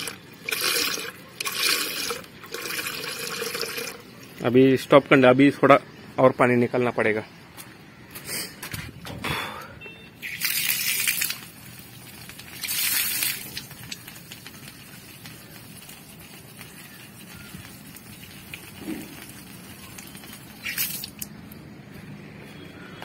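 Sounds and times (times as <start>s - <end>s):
hissing water spurts: 0.0s - 4.4s, 10.2s - 21.3s
water splashing onto concrete: 10.2s - 21.4s.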